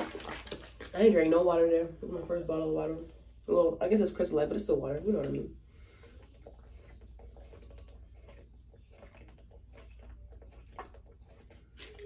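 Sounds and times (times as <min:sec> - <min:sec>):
person gulping from plastic bottle: 0:00.0 - 0:01.0.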